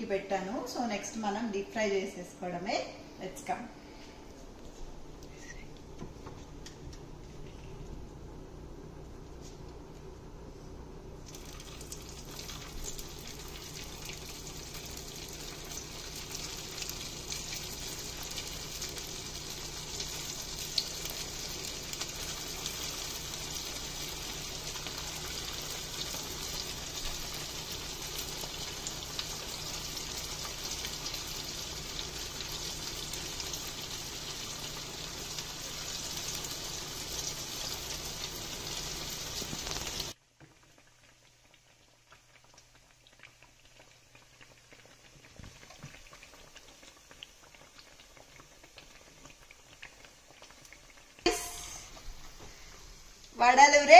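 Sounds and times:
food deep-frying in hot oil: 11.2 - 53.9.

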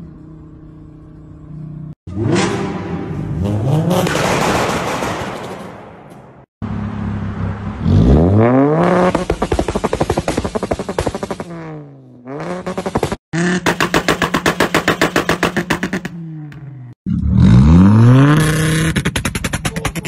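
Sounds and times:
car engine revving: 1.8 - 4.2, 6.6 - 20.0
exhaust pops crackling: 8.9 - 11.6.

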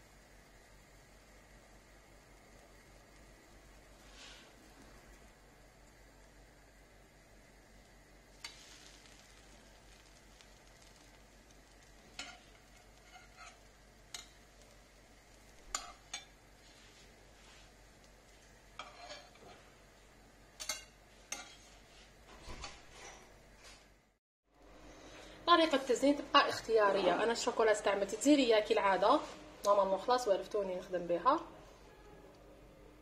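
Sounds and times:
pancakes sizzling: 0.0 - 23.4
spatula taps and scrapes on pan: 12.2 - 14.3, 15.7 - 16.4, 20.6 - 21.6.

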